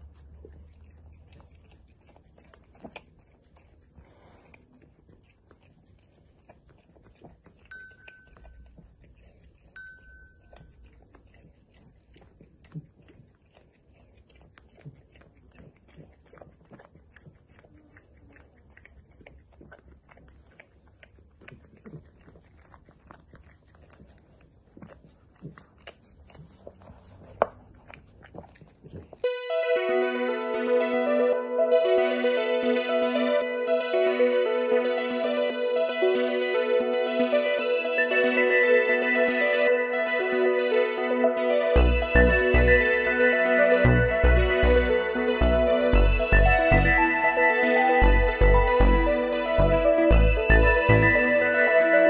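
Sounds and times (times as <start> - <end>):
dog licking and lapping: 0.0 - 29.5, 33.6 - 49.4, 50.3 - 52.0
music: 29.3 - 52.0
short high beeps: 35.9 - 52.0.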